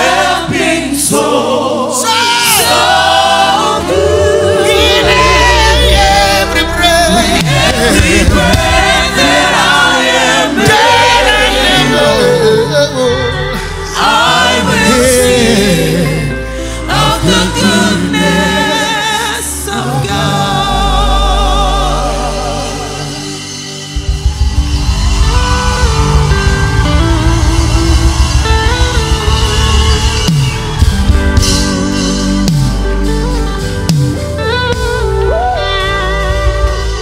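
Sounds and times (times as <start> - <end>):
lead singer singing: 0.0 - 23.6
backing singers: 0.0 - 33.0
guitar-led music: 0.0 - 37.0.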